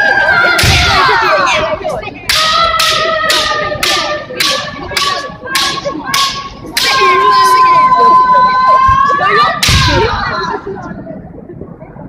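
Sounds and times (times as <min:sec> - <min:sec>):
bamboo swords striking: 0:00.6 - 0:01.0, 0:02.3 - 0:07.1, 0:09.6 - 0:10.0
high-pitched shout: 0:02.3 - 0:10.7.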